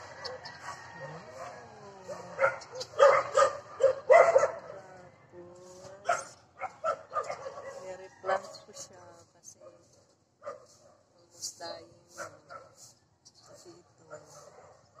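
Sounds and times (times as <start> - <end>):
dog yipping: 2.2 - 4.6.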